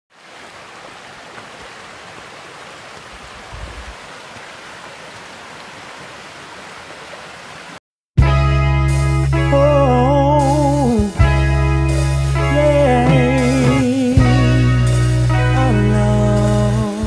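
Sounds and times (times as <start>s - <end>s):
stream rushing over rocks: 0.1s - 7.8s.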